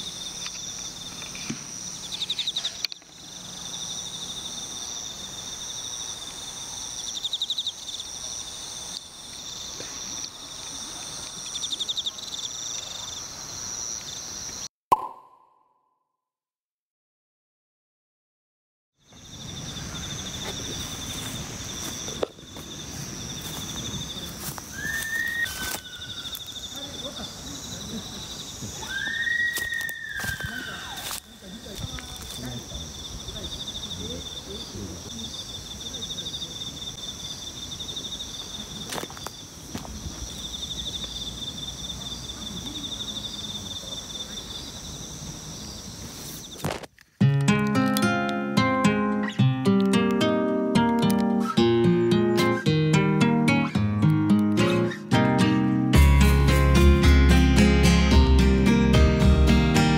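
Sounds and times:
higher insect song: 0.0 - 14.7, 19.0 - 59.9
insects trilling: 0.0 - 14.7, 19.0 - 46.9.

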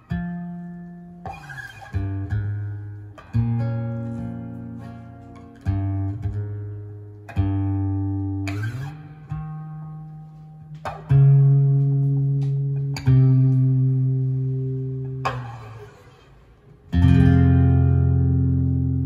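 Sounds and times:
slow instrumental guitar: 0.0 - 19.0.

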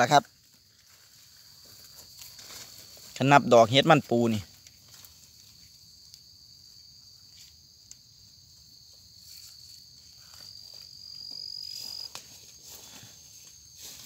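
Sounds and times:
insects trilling: 0.0 - 14.0.

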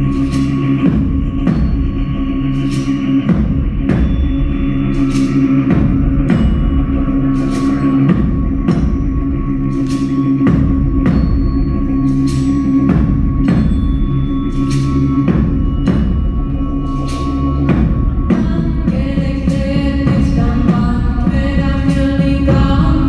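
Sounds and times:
steady low drone: 0.0 - 23.0.

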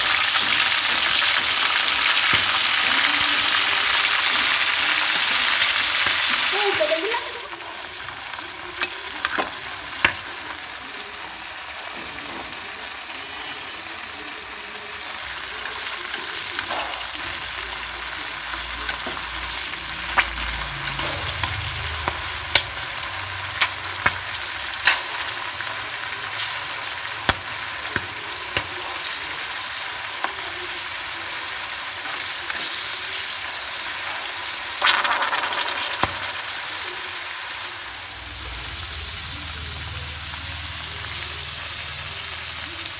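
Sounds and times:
deep-frying sizzle with pops: 0.0 - 42.9.

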